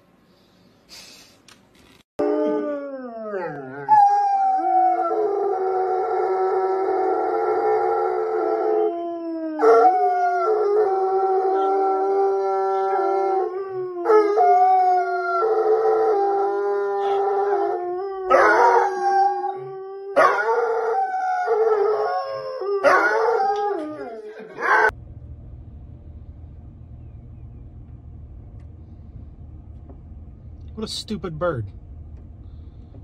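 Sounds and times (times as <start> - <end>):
dogs howling: 2.2 - 25.0.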